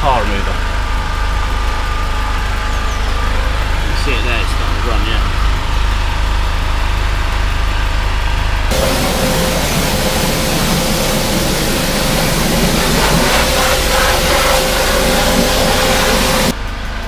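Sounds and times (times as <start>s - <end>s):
pressure washer spraying water: 8.7s - 16.6s.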